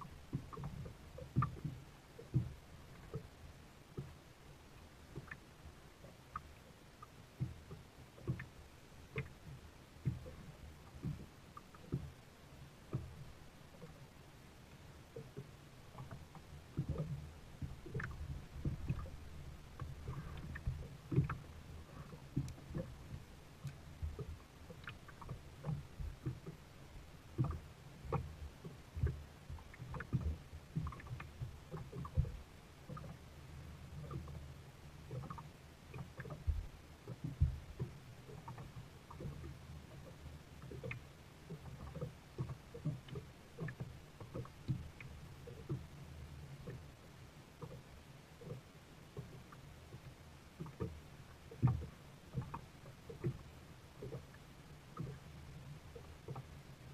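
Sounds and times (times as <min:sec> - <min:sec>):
low steady rumble: 0:00.0 - 0:56.9
paddle knocking on kayak hull: 0:36.2 - 0:38.6.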